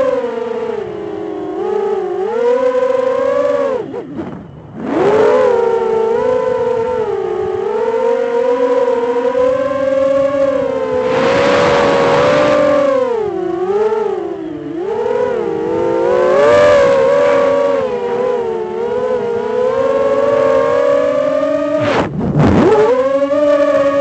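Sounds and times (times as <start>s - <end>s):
drone motors whining: 0.0s - 24.0s
wind rushing: 10.7s - 13.1s.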